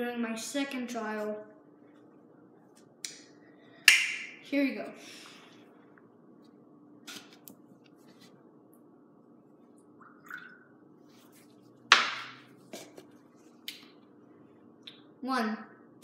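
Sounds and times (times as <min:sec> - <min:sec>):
water dripping: 0:09.8 - 0:10.8.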